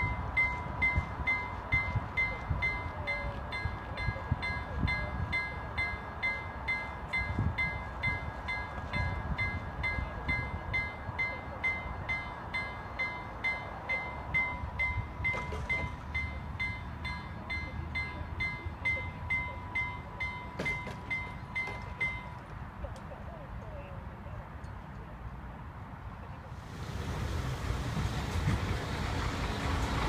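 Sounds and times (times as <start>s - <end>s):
level crossing warning bell: 0.0s - 22.6s.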